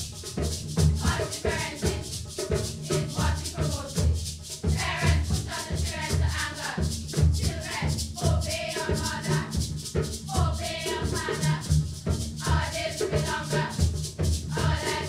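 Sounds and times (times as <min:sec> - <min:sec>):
shaker rhythm: 0:00.0 - 0:15.0
girls singing together: 0:01.0 - 0:02.1, 0:02.9 - 0:09.6, 0:10.3 - 0:11.8, 0:12.4 - 0:13.9, 0:14.5 - 0:15.0.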